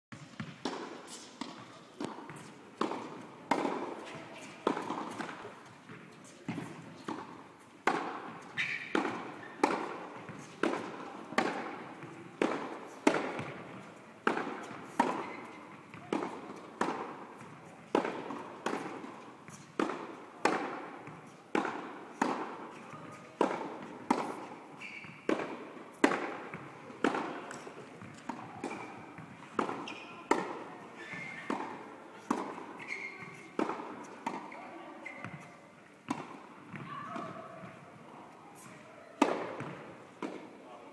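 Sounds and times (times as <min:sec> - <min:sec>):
racket hitting tennis ball: 0:00.1 - 0:40.6
tennis ball bouncing: 0:00.1 - 0:40.6.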